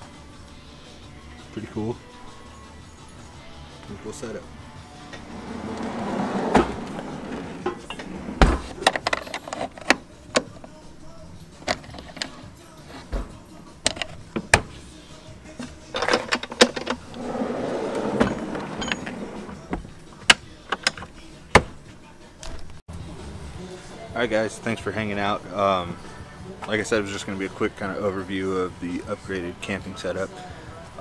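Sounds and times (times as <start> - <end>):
wood rubbing and sliding: 5.1 - 9.9, 16.0 - 19.9
drawer sliding and knocking shut: 5.2 - 9.2, 16.0 - 19.9, 20.8 - 21.8
metal latches clicking: 6.6 - 10.7, 11.6 - 12.4, 13.8 - 14.8, 15.6 - 21.7.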